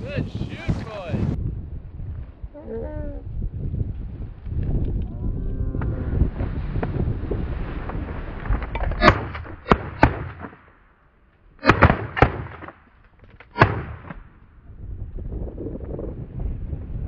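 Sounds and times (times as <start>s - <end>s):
shotgun shots: 9.0s - 10.7s, 11.6s - 12.8s, 13.5s - 14.2s.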